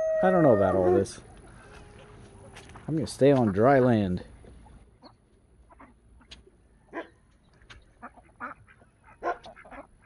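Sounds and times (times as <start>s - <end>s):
ducks quacking: 3.2s - 7.1s, 7.7s - 10.0s.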